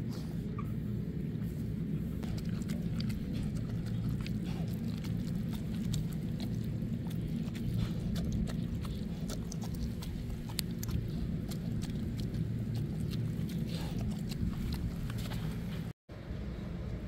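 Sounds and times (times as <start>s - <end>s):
steady low rumble: 0.0s - 17.0s
teeth clicking on bowl: 2.2s - 15.4s
dog chewing wet food: 2.2s - 15.9s.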